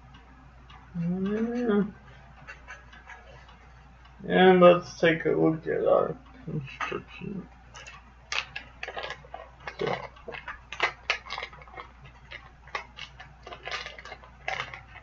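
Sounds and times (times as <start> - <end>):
packaging crackling and clicking: 7.8 - 15.0.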